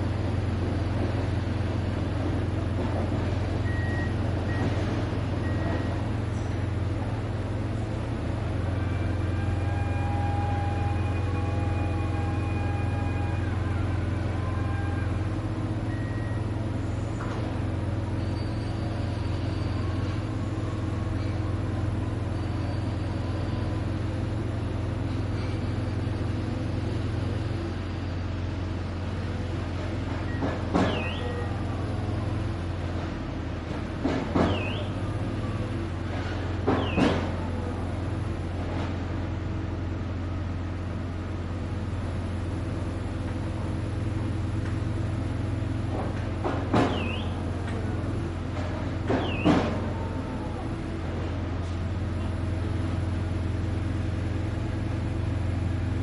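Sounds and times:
construction machinery rumble: 0:00.0 - 0:56.0
traffic: 0:00.0 - 0:56.0
sharp sounds with high squeal: 0:18.0 - 0:24.3, 0:30.3 - 0:32.6, 0:34.4 - 0:35.8, 0:36.7 - 0:37.7, 0:46.8 - 0:47.5, 0:49.0 - 0:50.8.

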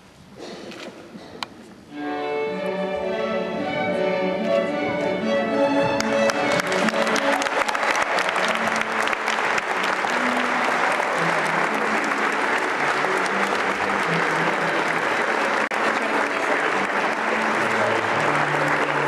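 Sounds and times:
crowd applauding: 0:05.9 - 0:19.0.

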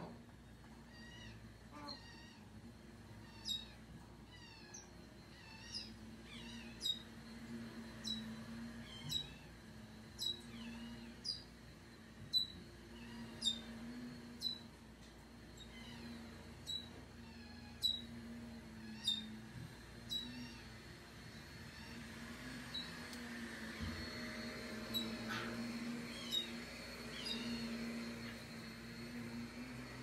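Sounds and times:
steady low hum: 0:00.0 - 0:30.0
parrot squeaks: 0:00.9 - 0:02.5, 0:03.2 - 0:07.2, 0:08.0 - 0:09.5, 0:10.2 - 0:11.5, 0:12.3 - 0:13.7, 0:15.6 - 0:18.1, 0:18.8 - 0:19.4, 0:20.1 - 0:20.6, 0:26.1 - 0:27.7.

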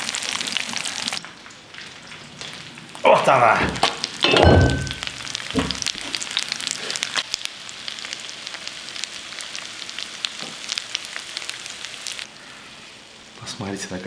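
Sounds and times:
oil sizzling in a frying pan: 0:00.0 - 0:13.4.

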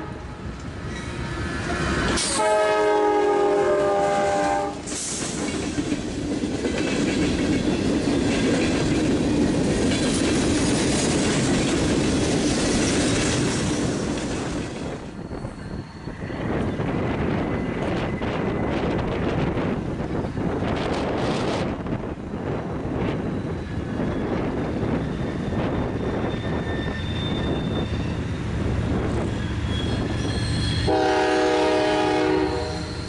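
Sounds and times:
locomotive horn blast: 0:02.2 - 0:04.8, 0:30.8 - 0:33.0
freight cars rumbling and clattering: 0:04.8 - 0:30.9.

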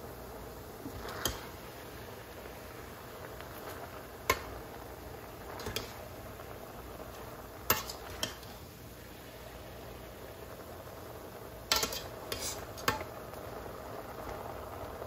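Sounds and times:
metal spoon clinking on pan: 0:07.7 - 0:08.5, 0:11.7 - 0:13.1.

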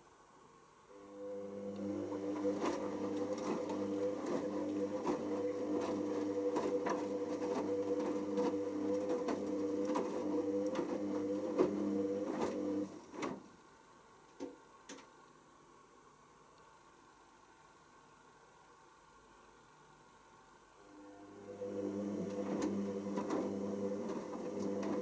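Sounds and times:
washing machine motor hum: 0:00.9 - 0:13.5, 0:20.8 - 0:25.0.

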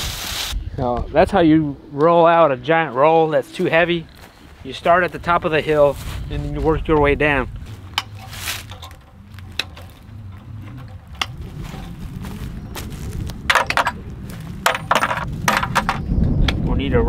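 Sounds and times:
wire fence rattling and clinking: 0:07.8 - 0:12.1, 0:13.4 - 0:14.0, 0:14.6 - 0:16.0.

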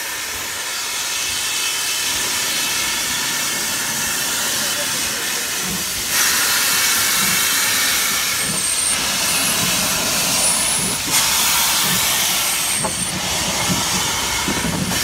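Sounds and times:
locomotive steam hissing: 0:00.0 - 0:15.0.

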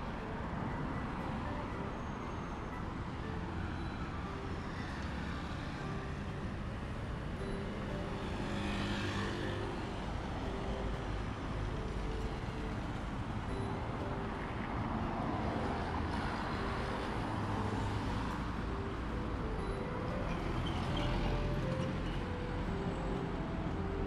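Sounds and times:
street traffic rumble: 0:00.0 - 0:24.0
vehicle passing close by: 0:08.2 - 0:10.0.

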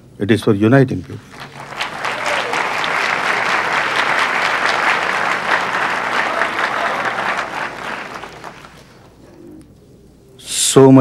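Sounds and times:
audience applauding: 0:01.1 - 0:09.4.

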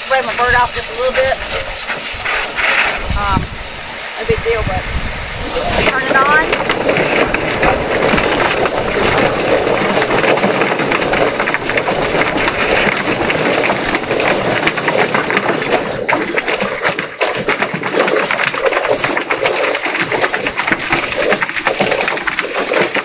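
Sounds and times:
hose spraying water: 0:00.0 - 0:23.0
feather plucker machine running: 0:05.4 - 0:23.0
quick irregular knocks: 0:05.8 - 0:23.0.

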